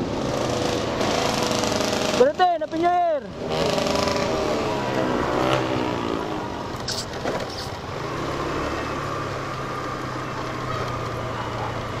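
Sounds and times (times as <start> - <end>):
road and wind noise: 0.0 - 12.0
motor scooter engine humming: 3.8 - 12.0.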